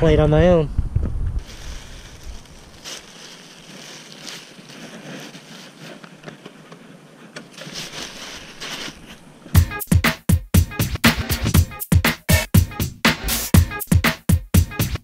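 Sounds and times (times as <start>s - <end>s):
plastic bag crinkling and rustling: 1.4s - 9.5s
loud music with strong beat: 9.6s - 15.0s.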